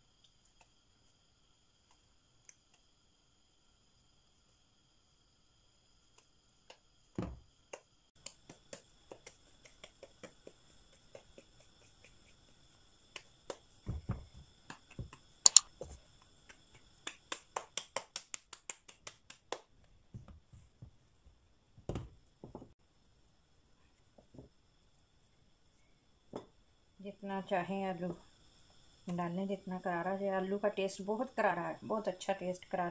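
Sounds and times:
hands patting dough: 6.2 - 22.8.

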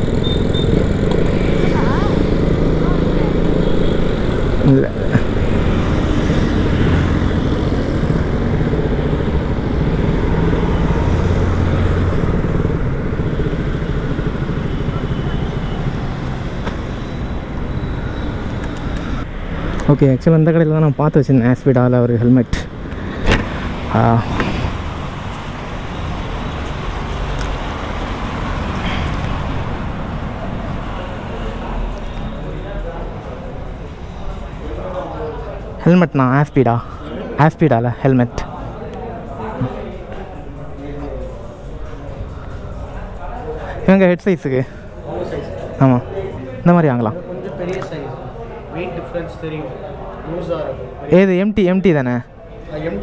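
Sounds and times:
motorcycle engine running: 0.0 - 4.7
road traffic noise: 0.0 - 53.0.

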